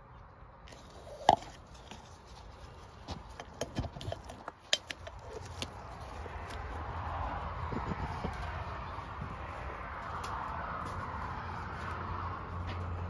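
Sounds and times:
sharp clicks and light knocks: 1.3 - 6.7.

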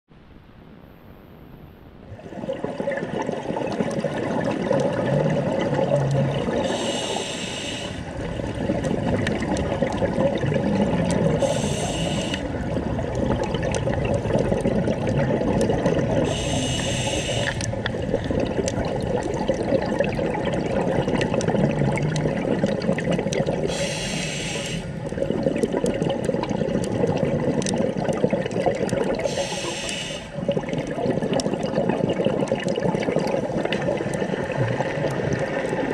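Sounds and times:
bubbling water rush: 2.1 - 35.9
regulator breathing hisses: 6.6 - 8.1, 11.4 - 12.5, 16.3 - 17.7, 23.7 - 25.0, 29.2 - 30.4.

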